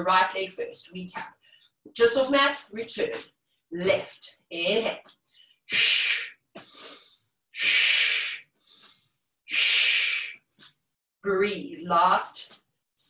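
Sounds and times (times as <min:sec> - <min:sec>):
woman breathing hard: 0:05.3 - 0:10.4.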